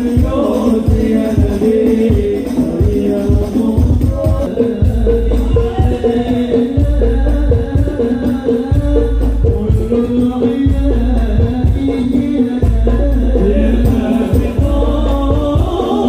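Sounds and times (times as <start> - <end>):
frame drums and rattling percussion: 0.0 - 16.0
deep heavy bass: 3.9 - 16.0.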